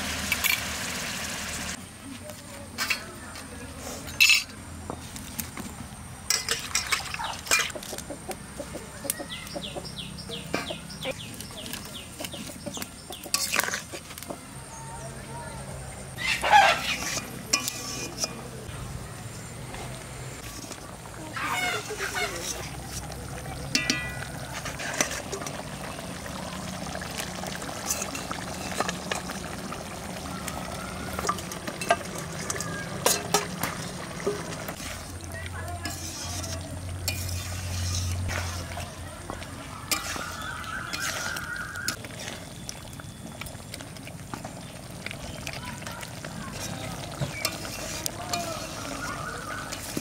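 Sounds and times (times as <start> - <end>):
steel ladle clinking on metal pan: 6.3 - 7.7, 17.0 - 18.5, 23.7 - 25.3, 31.2 - 33.6
chickens clucking: 6.8 - 14.4, 16.1 - 18.7, 19.7 - 27.0, 38.1 - 42.0
spoon scraping steel bowl: 13.3 - 14.1, 16.4 - 18.5, 21.4 - 23.0, 23.7 - 25.5, 35.8 - 38.8, 39.9 - 42.0, 46.5 - 50.0.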